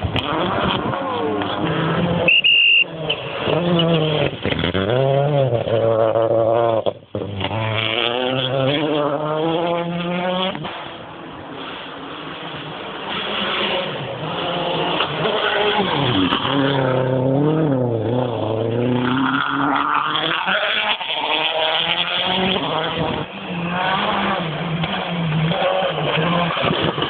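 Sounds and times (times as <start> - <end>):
rally car engine: 0.0 - 27.0.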